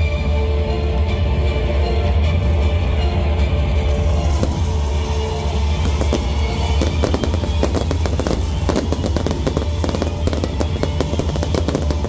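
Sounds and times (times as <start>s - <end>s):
music with deep bass: 0.0s - 12.0s
fireworks crackling and popping: 3.8s - 12.0s.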